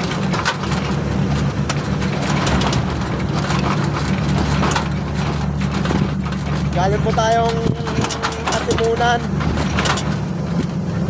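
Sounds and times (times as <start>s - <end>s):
road noise: 0.0s - 11.0s
truck engine hum: 0.0s - 11.0s.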